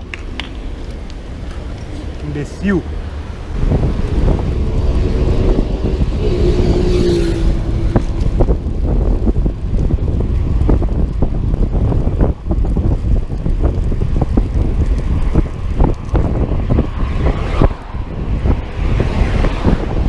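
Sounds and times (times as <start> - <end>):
road traffic: 0.0 - 20.0
wind on microphone: 0.0 - 20.0
vehicle passing with humming tone: 1.8 - 8.9.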